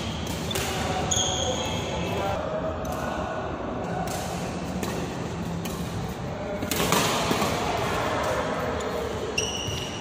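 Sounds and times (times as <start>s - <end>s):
racket hitting shuttlecock: 0.0s - 1.1s, 3.9s - 8.5s.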